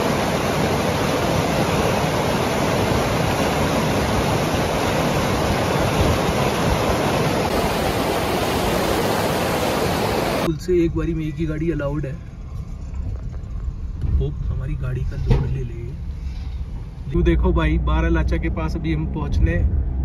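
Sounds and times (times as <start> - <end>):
river rushing: 0.0 - 10.5.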